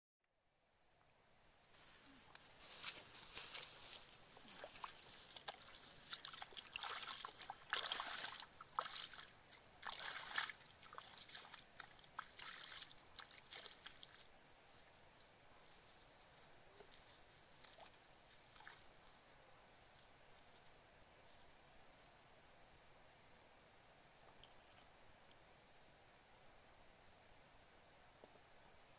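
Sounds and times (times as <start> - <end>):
bare feet splashing through water: 4.4 - 14.4, 16.9 - 19.0.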